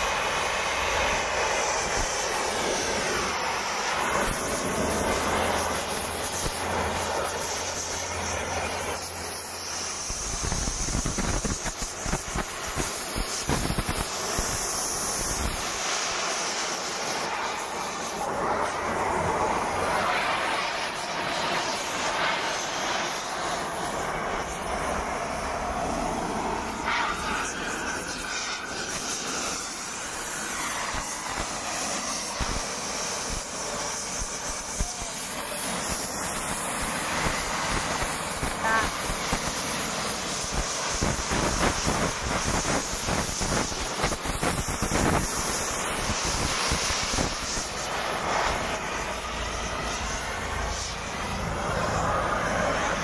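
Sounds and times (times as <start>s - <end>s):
cutting torch flame hissing: 0.0s - 53.0s.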